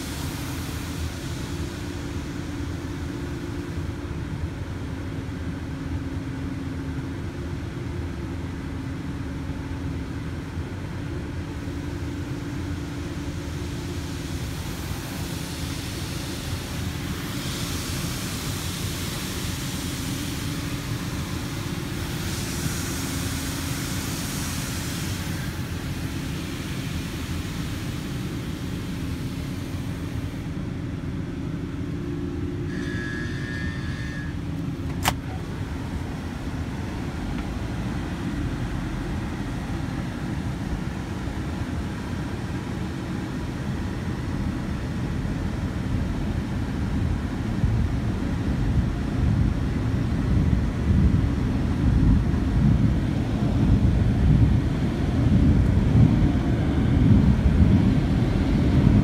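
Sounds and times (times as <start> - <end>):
car wash machinery rumbling: 0.0 - 59.0
water spray hissing on car: 13.6 - 30.6.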